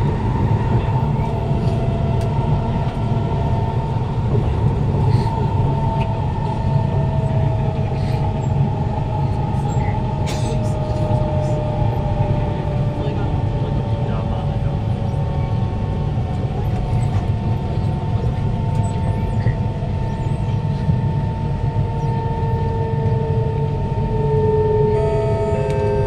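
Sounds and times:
two-tone motor whine: 0.0 - 26.0
wheel and rail rumble: 0.0 - 26.0.

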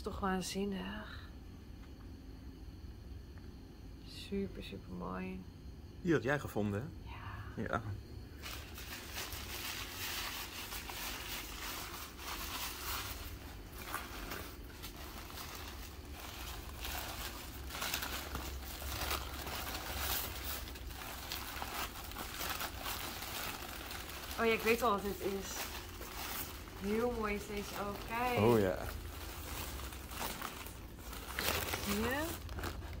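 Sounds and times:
packing paper crinkling: 8.4 - 33.0.

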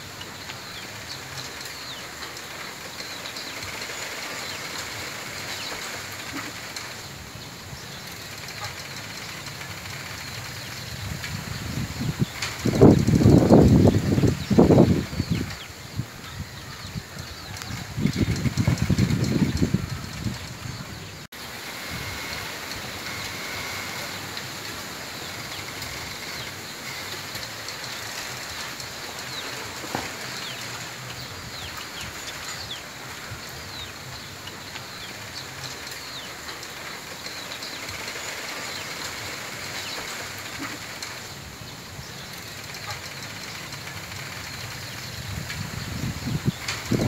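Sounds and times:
wind rustling bamboo: 0.0 - 47.0.

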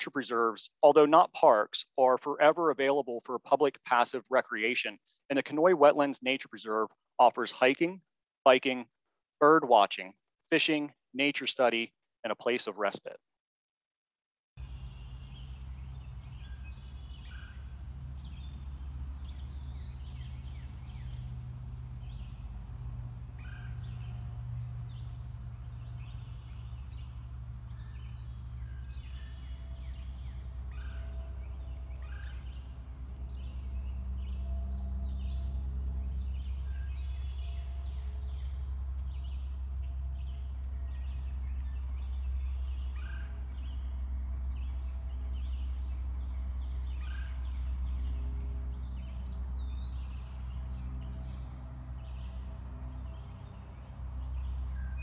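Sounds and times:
birds chirping and whistling: 14.6 - 55.0
steady low rumble: 14.6 - 55.0.

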